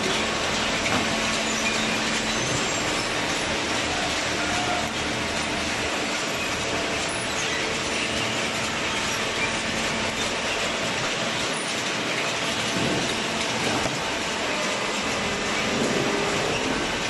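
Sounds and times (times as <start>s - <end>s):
conveyor clatter and rattle: 0.0s - 17.0s
faint machine hum: 0.0s - 17.0s.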